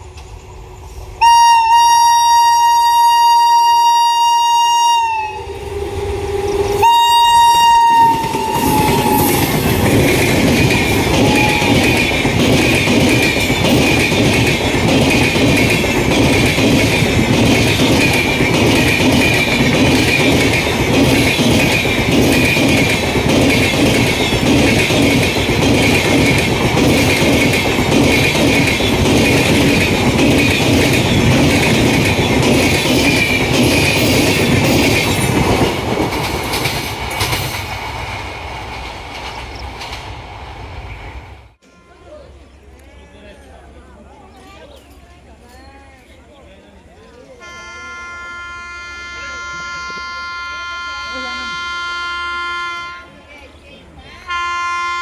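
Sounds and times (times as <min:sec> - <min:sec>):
wheels clicking over rail joints: 0:08.0 - 0:40.3.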